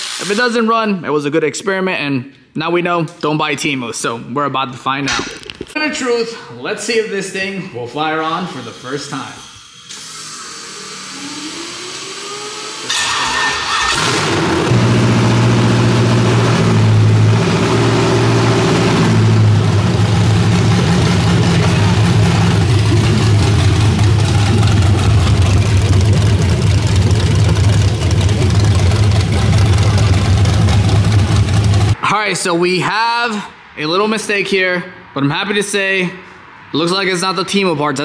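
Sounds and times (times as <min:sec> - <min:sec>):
engine starting and idling: 0:09.9 - 0:32.0
starter whine: 0:10.6 - 0:32.0.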